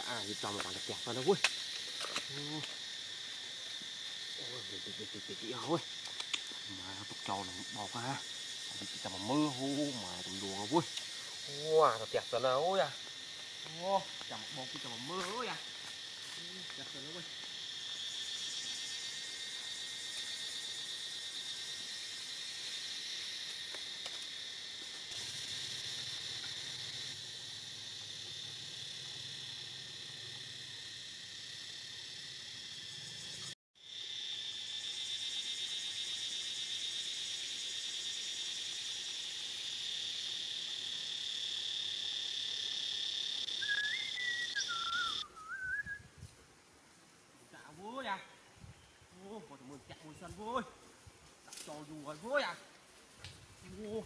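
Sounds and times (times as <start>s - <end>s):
insect chorus buzzing: 0.0s - 54.0s
wavering whistle-like call: 43.6s - 46.2s.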